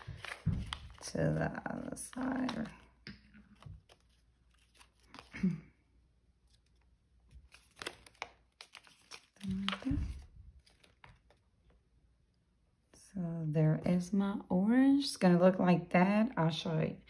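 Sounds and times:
paper rustling and crinkling: 0.0 - 5.6, 6.4 - 11.8.

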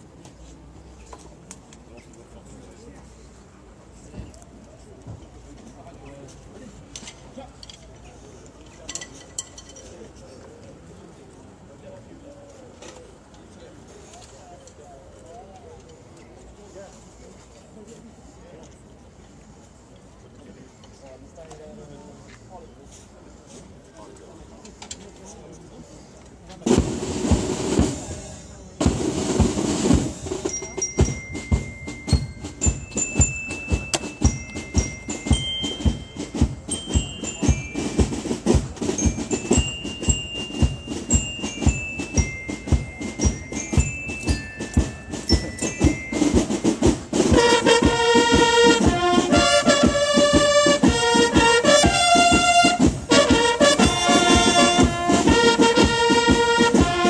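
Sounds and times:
drums beating march rhythm: 26.6 - 57.0
bugles playing: 28.9 - 57.0
high clear melody: 30.4 - 57.0.

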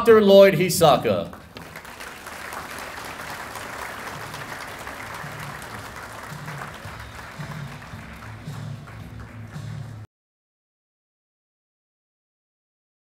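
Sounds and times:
audience applauding: 1.0 - 10.1
faint music with low bass: 4.0 - 10.1.

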